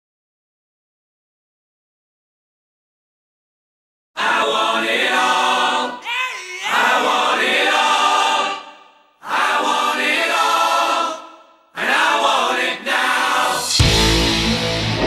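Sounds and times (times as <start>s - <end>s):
music with choir singing: 4.2s - 6.0s, 6.8s - 15.0s.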